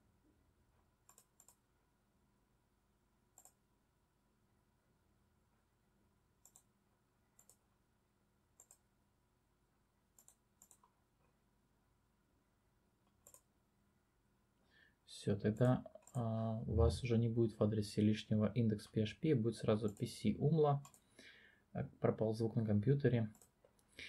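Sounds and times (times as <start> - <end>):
computer mouse clicks: 1.0 - 1.6, 3.4 - 3.6, 6.4 - 6.7, 7.4 - 7.6, 8.6 - 8.9, 10.2 - 11.0, 13.0 - 13.5, 15.6 - 16.2, 20.8 - 21.1, 23.3 - 23.9.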